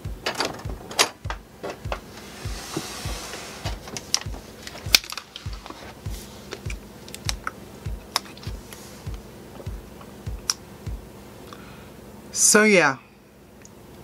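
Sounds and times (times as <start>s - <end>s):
steady low thump: 0.0s - 11.2s.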